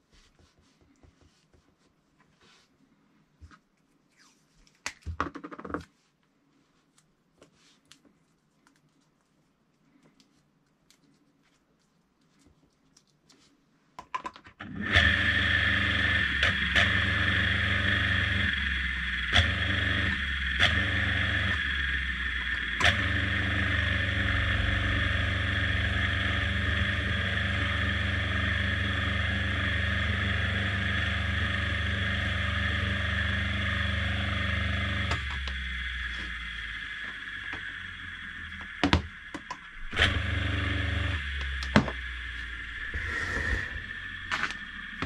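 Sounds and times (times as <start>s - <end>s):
electric motor hum and whine: 14.6s - 45.0s.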